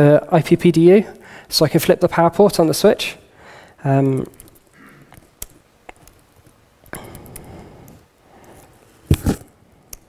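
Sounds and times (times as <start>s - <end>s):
laptop keyboard keystrokes: 4.2s - 8.0s.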